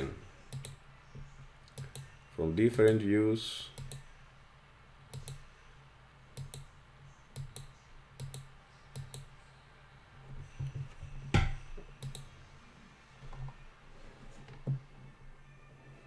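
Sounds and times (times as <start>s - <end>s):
faint low hum: 0.0s - 16.0s
computer mouse clicking: 0.5s - 0.8s, 1.6s - 2.1s, 3.8s - 4.1s, 5.1s - 5.5s, 6.4s - 6.7s, 7.3s - 9.3s, 12.0s - 12.3s.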